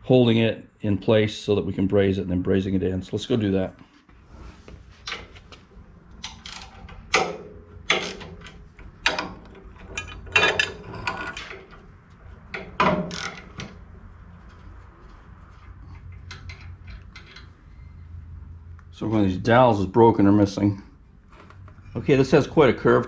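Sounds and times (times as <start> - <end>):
metal parts knocking: 6.2 - 11.8, 12.5 - 13.7.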